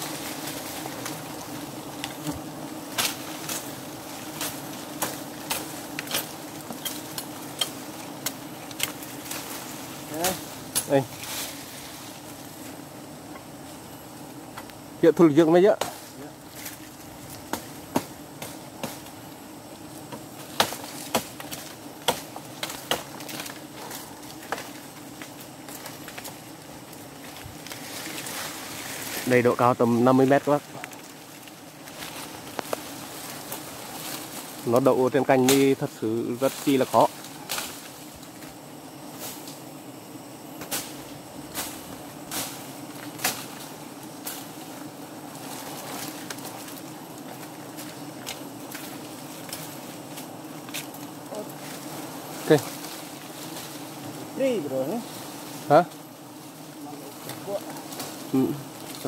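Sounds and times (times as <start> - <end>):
honeybees buzzing: 0.0 - 59.0
sharp snaps and knocks: 2.0 - 3.7, 4.3 - 9.6, 10.7 - 11.5, 15.8 - 19.2, 20.1 - 28.5, 30.8 - 34.4, 37.2 - 38.5, 40.6 - 44.5, 45.4 - 52.0.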